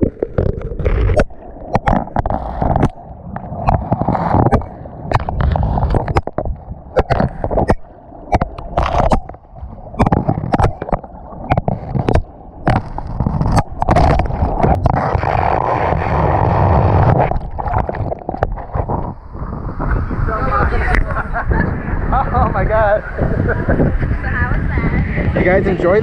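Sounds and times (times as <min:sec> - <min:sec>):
water rushing and gurgling in flume: 0:00.0 - 0:26.0.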